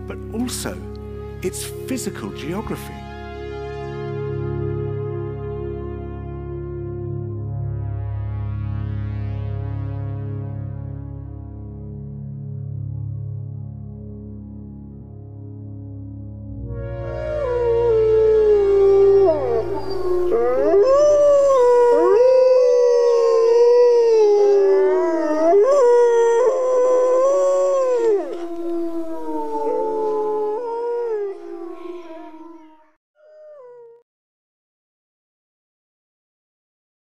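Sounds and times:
low music drone: 0.0 - 32.6
wolves howling in chorus: 17.3 - 32.4.

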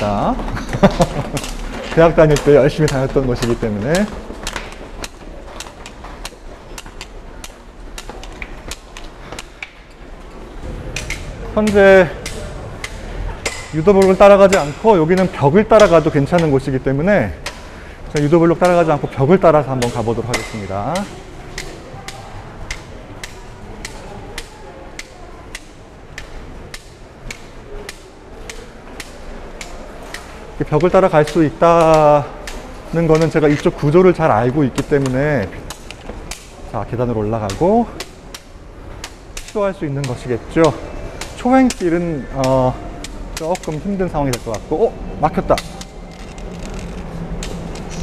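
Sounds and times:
low background hum: 0.0 - 48.0
cane tip tapping on stone steps: 2.3 - 10.0, 34.7 - 47.9.

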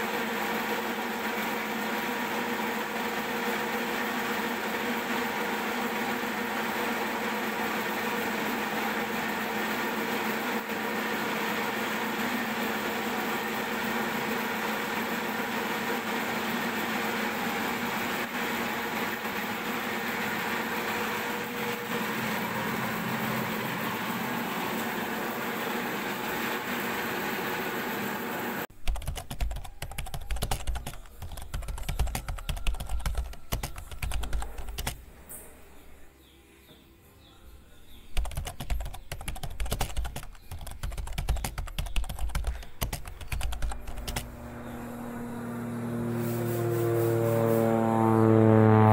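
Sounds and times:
machine humming: 0.0 - 36.2, 37.4 - 48.9
rapid irregular clicking: 28.7 - 35.0, 38.2 - 44.4.

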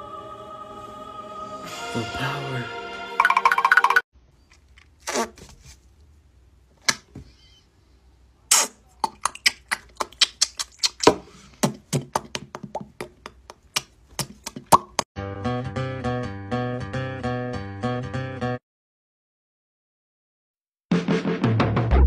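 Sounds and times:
man making mouth pops: 8.5 - 15.0.

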